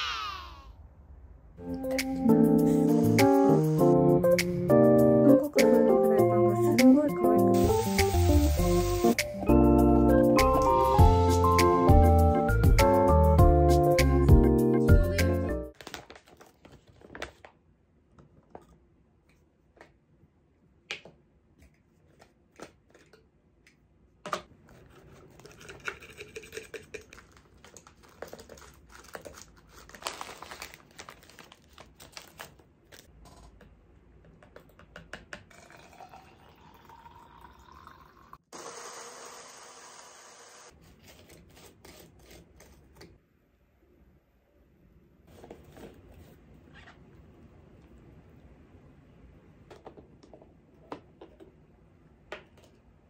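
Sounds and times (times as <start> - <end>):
liquid pouring into container: 35.5 - 38.5.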